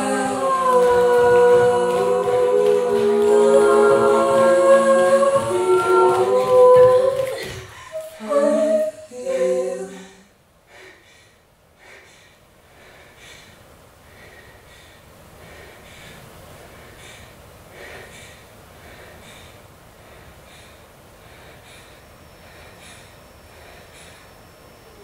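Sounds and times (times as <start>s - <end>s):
woman singing held notes: 0.0s - 10.3s
rhythmic breathing: 0.0s - 25.0s.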